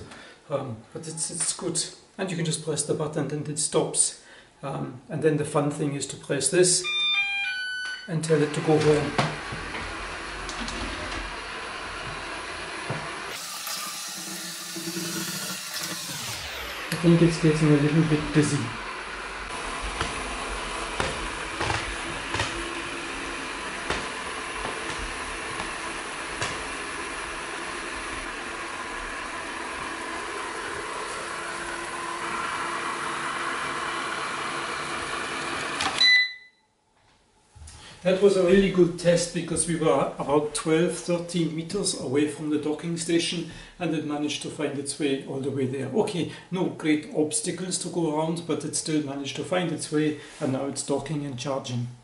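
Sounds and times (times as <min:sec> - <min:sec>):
robot vacuum whirring: 0:06.8 - 0:36.0.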